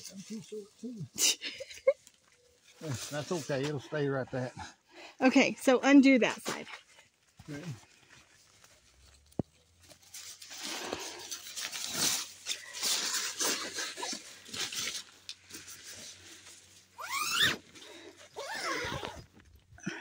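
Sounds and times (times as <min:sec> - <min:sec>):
nylon tent fabric rustling: 0:07.2 - 0:19.4
short rising squeals: 0:17.0 - 0:17.7.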